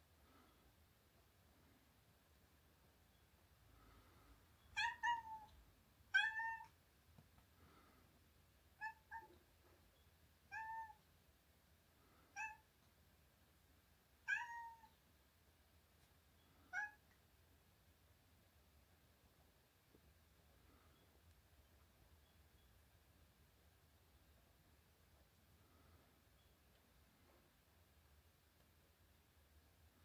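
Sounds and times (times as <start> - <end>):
cat meowing: 4.7 - 5.5, 6.1 - 6.8, 8.8 - 9.4, 10.5 - 11.0, 12.3 - 12.6, 14.2 - 15.0, 16.7 - 17.0.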